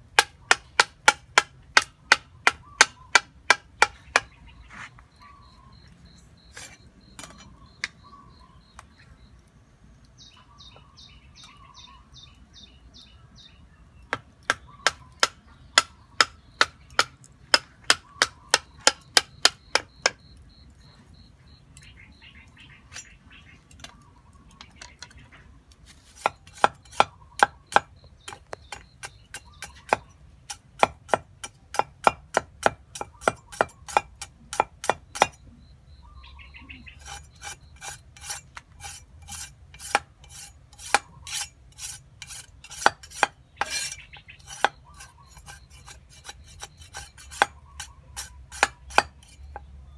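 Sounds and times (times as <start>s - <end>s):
knife chopping on wooden block: 0.1s - 4.4s, 26.2s - 35.4s, 37.0s - 47.6s, 48.2s - 49.7s.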